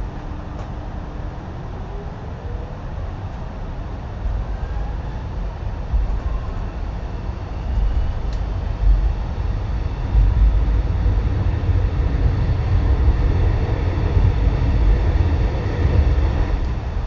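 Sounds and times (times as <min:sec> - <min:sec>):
train wheels rumbling on rails: 0:03.1 - 0:17.0
faint gliding whine: 0:04.2 - 0:17.0.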